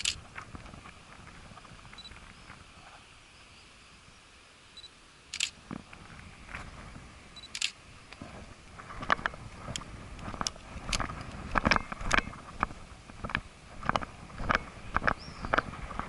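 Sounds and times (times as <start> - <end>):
camera shutter click: 0.0 - 0.2, 5.3 - 5.6, 7.4 - 7.8
camera focus beep: 2.0 - 2.2, 4.8 - 5.6, 7.4 - 7.8.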